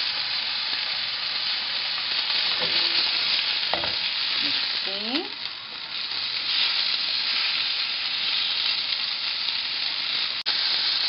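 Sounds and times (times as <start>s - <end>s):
chicken sizzling in frying pan: 0.0s - 11.0s.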